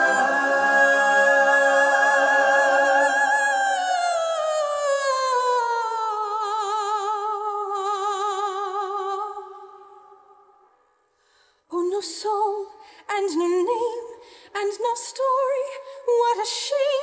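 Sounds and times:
lower sustained voices: 0.0 - 4.8
woman singing wordless ooh: 2.8 - 10.4, 11.7 - 17.0.

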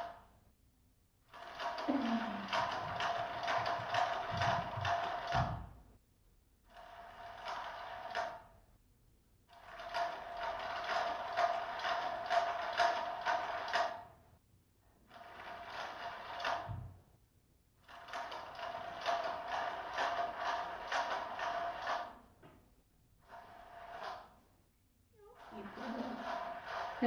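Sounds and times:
toy motor whirring and clicking: 1.3 - 5.5, 6.7 - 8.5, 9.5 - 14.1, 15.1 - 16.7, 17.8 - 22.2, 23.2 - 24.4, 25.3 - 27.0.

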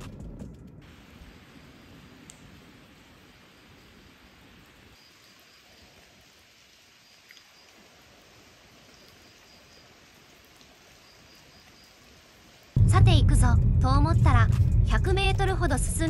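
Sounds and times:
low rumble: 0.0 - 1.2, 12.8 - 16.0
soft steady hiss: 0.8 - 13.2.

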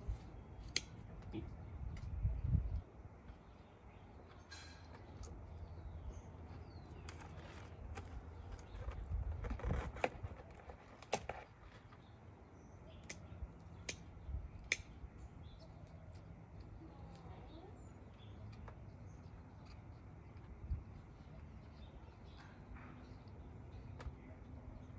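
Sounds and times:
birds chirping faintly: 0.0 - 24.9
scissors snipping stems: 0.6 - 2.2, 13.0 - 15.1
handling rustle: 4.2 - 12.2.

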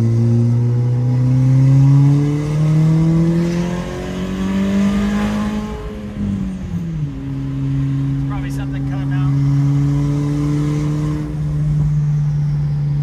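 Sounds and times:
car engine accelerating: 0.0 - 13.0.

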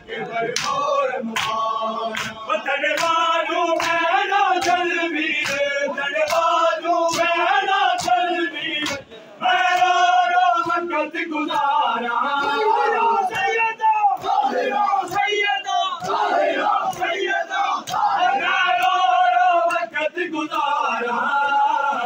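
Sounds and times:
men chanting in unison: 0.0 - 22.0
hand slaps on bare chests: 0.6 - 0.8, 1.4 - 3.2, 5.4 - 5.7, 6.3 - 6.5, 8.8 - 9.1, 17.8 - 18.2.

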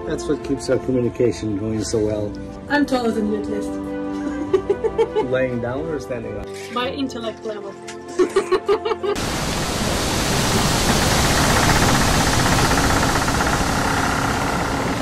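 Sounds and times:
loud rushing hiss: 9.2 - 15.0.

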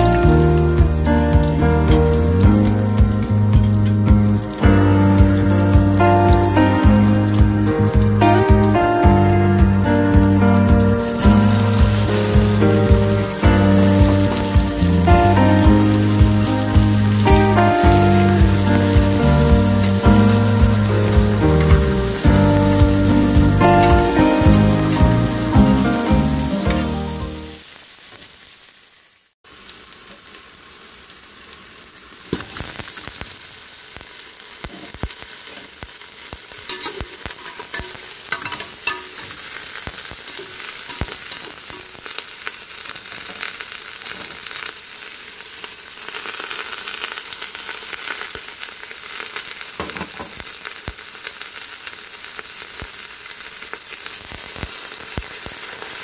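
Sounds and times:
background music: 0.0 - 27.6
meat sizzling in fat: 0.0 - 56.0.

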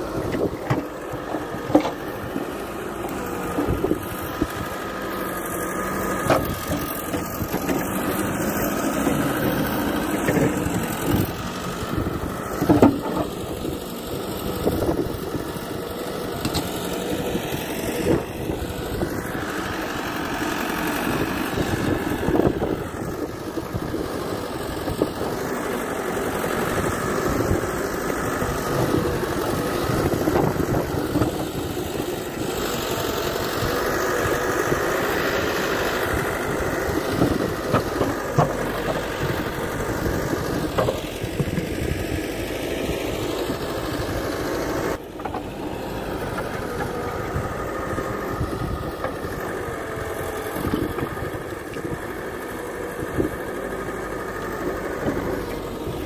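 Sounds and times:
backhoe diesel engine running: 0.0 - 56.0.

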